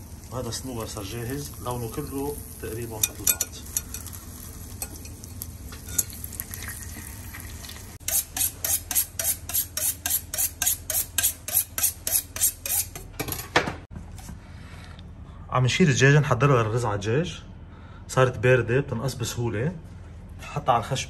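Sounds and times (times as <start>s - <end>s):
food sizzling in a pan: 0.0s - 8.7s
utensil scraping a pan: 8.0s - 13.1s.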